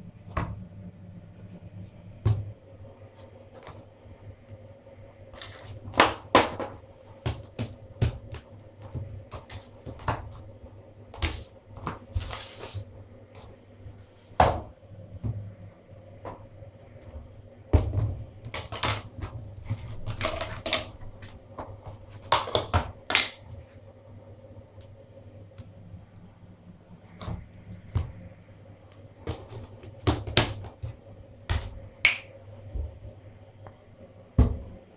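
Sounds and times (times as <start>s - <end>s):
faint steady hum: 0.0s - 34.9s
plastic cups and lids clicking: 19.9s - 21.3s.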